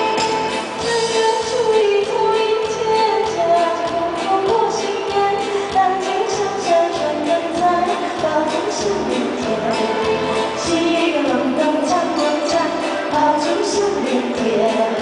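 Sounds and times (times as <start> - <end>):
keyboard: 0.0 - 15.0
violin: 0.0 - 15.0
woman singing: 0.8 - 15.0.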